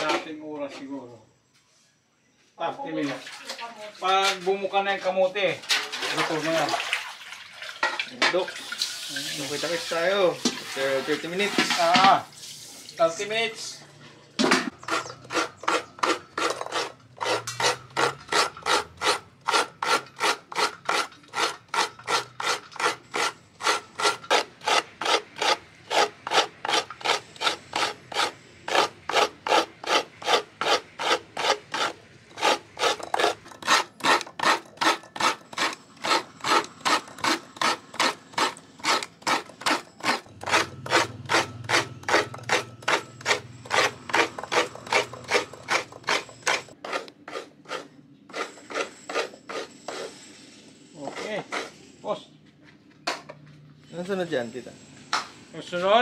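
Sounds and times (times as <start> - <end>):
coconut rasping on grater blade: 14.7 - 50.4, 51.0 - 52.2.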